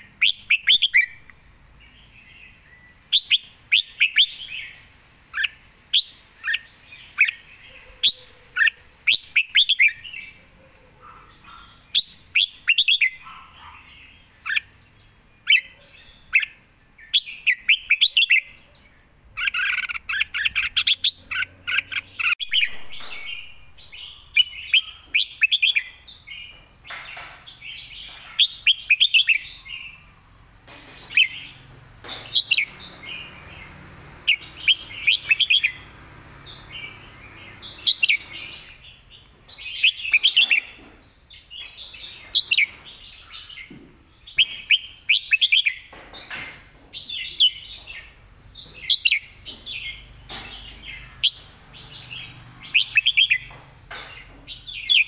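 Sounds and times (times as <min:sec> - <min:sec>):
bird singing whistled phrases: 0:00.2 - 0:01.2, 0:03.1 - 0:04.8.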